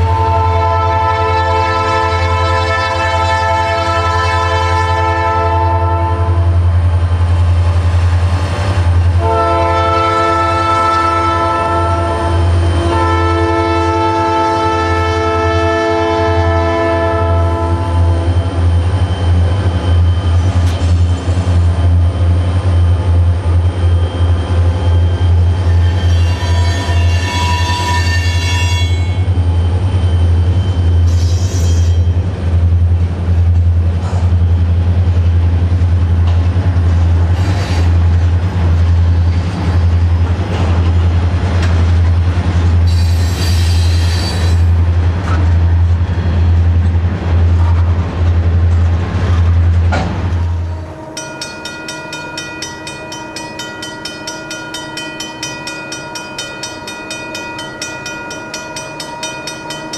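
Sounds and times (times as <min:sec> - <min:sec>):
train cars rumbling past: 0:00.0 - 0:59.9
wheel squeals: 0:23.6 - 0:32.1, 0:42.9 - 0:44.7
crossing bell ringing: 0:23.8 - 0:32.2, 0:50.6 - 0:59.9.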